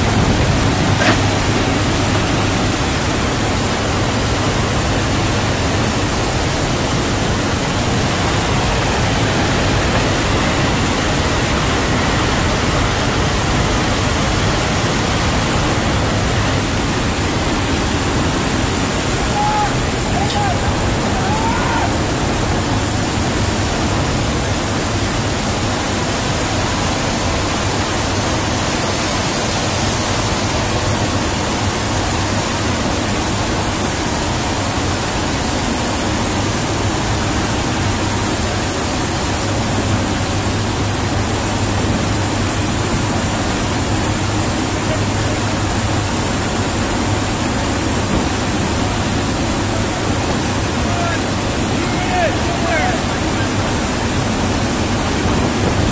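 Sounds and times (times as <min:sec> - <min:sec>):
low drone of turboprop engines: 0:00.0 - 0:55.9
rush of slipstream wind: 0:00.0 - 0:55.9.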